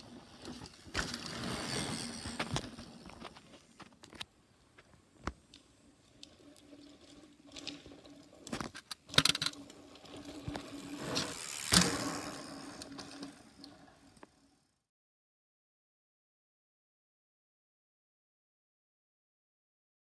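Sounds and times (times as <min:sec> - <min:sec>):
bike tyres crunching on dirt: 0:00.0 - 0:04.2, 0:06.4 - 0:14.5
bike clattering: 0:00.4 - 0:04.0, 0:08.1 - 0:13.6.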